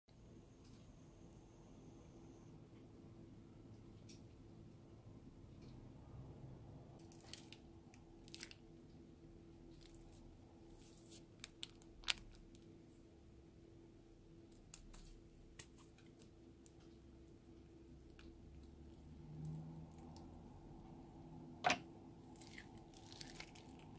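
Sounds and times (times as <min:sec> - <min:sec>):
faint steady hum: 0:00.1 - 0:23.9
plastic bags crinkling: 0:07.0 - 0:08.6, 0:09.7 - 0:12.7, 0:22.3 - 0:23.9.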